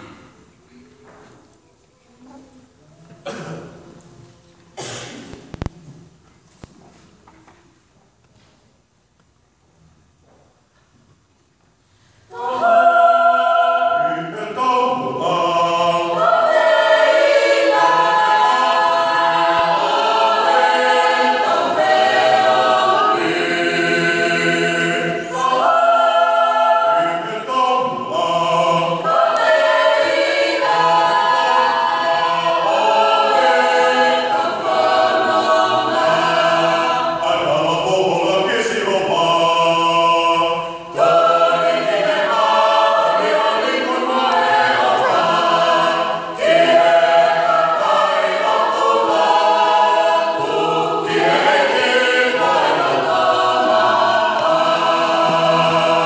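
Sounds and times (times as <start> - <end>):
choir singing a cappella: 0.0 - 0.5, 12.2 - 56.0.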